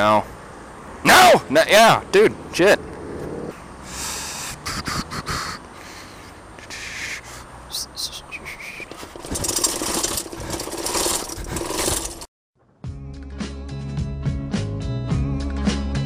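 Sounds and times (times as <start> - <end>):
bicycle rumbling over paving: 8.7 - 12.3
bicycle clattering down steps: 8.9 - 12.3.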